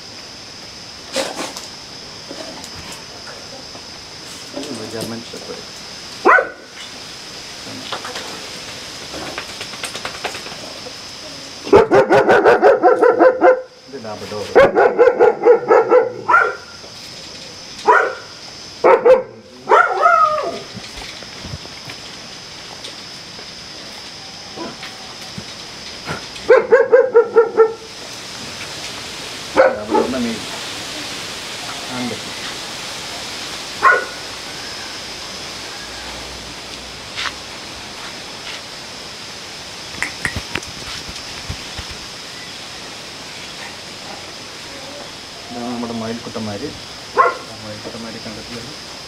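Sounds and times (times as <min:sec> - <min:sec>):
background hiss: 0:00.0 - 0:49.0
dog barking: 0:06.2 - 0:06.7, 0:11.7 - 0:13.8, 0:14.5 - 0:16.8, 0:17.8 - 0:20.6, 0:26.5 - 0:27.9, 0:29.5 - 0:30.3, 0:33.8 - 0:34.2, 0:47.2 - 0:47.5.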